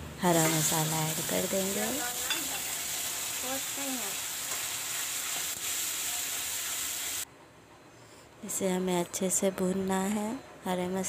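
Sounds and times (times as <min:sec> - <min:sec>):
paste sizzling in hot oil: 0:00.3 - 0:07.2.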